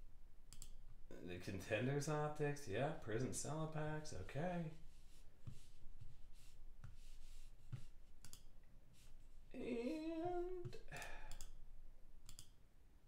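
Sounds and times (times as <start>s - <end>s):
man humming: 9.5s - 11.4s.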